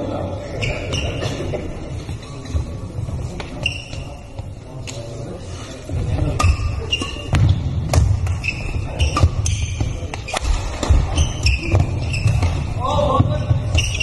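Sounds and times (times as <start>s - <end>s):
shoes squeaking: 0.5s - 4.6s, 6.1s - 14.0s
racket hitting shuttlecock: 6.4s - 12.8s.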